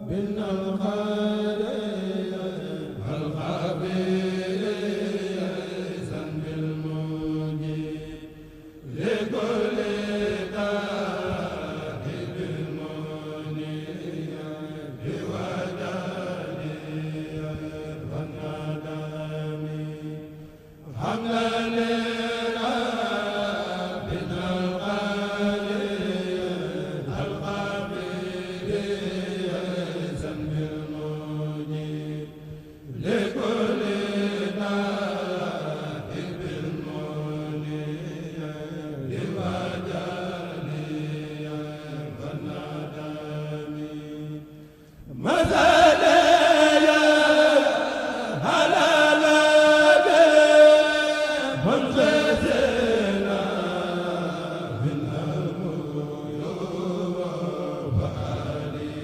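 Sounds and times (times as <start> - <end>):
breaths: 8.2 - 8.9, 20.3 - 20.9, 32.3 - 32.9, 44.4 - 45.2.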